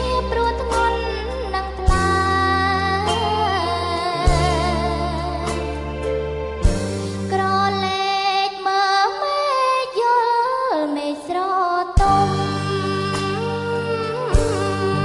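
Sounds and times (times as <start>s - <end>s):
woman singing into a microphone: 0.0s - 6.0s, 7.3s - 15.0s
band accompaniment: 0.0s - 7.8s, 12.0s - 15.0s.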